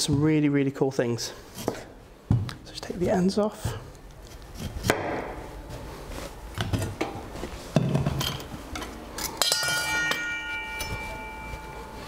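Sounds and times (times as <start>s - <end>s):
metal kitchenware ringing: 8.2s - 12.0s.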